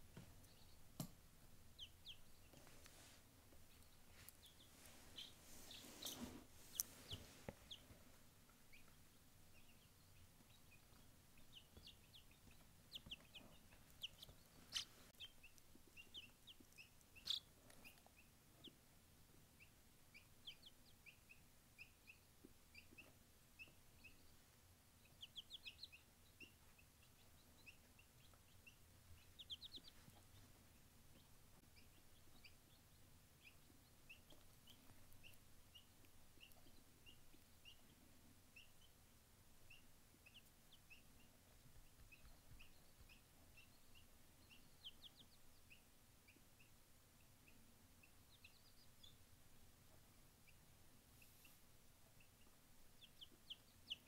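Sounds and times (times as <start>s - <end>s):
chick peeping: 0.0s - 54.0s.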